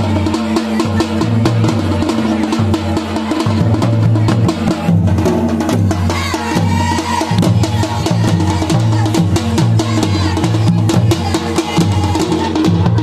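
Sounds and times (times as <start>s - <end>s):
deep booming barrel drum: 0.0s - 13.0s.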